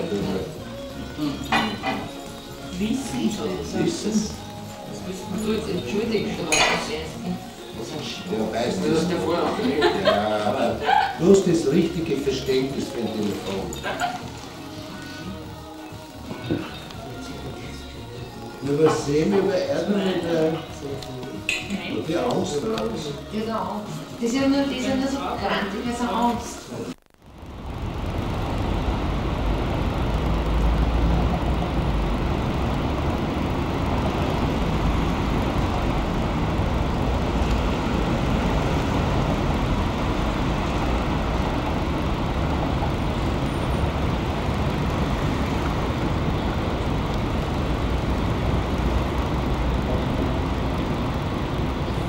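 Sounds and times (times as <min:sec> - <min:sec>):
vehicle engine and road rumble: 0:27.2 - 0:52.0.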